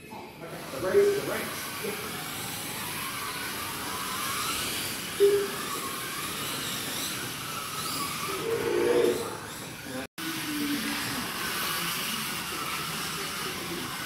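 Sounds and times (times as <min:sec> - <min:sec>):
slot car motors whining: 0:00.4 - 0:14.0
short loud tone: 0:05.2 - 0:05.6.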